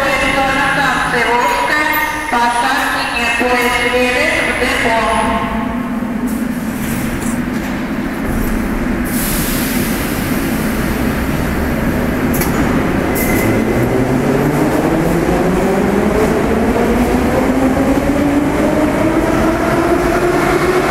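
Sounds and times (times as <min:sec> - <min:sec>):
train wheels rumbling and hissing: 0:04.3 - 0:20.9.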